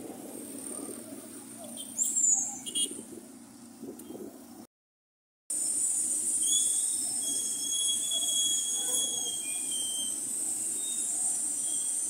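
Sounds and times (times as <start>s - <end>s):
street traffic: 0.0s - 4.7s, 5.5s - 12.0s
high whistle-like tone: 6.3s - 12.0s.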